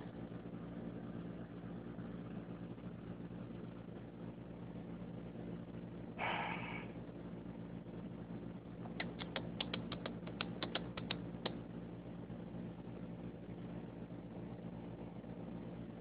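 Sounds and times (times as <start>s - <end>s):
steady low hum: 0.0s - 16.0s
sharp clicks: 8.9s - 11.6s.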